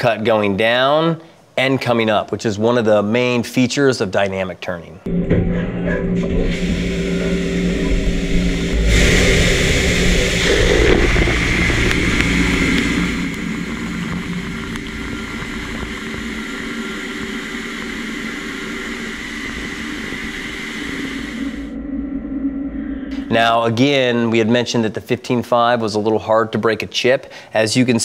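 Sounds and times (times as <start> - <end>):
faint steady tones: 5.1 - 24.4
machine hum: 5.1 - 25.0
coolant spray and cutting hiss: 6.3 - 21.7.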